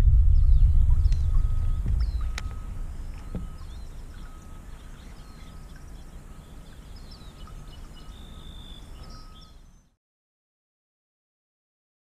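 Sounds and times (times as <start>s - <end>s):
steady low rumble: 0.0s - 9.4s
songbirds chirping: 0.0s - 10.0s.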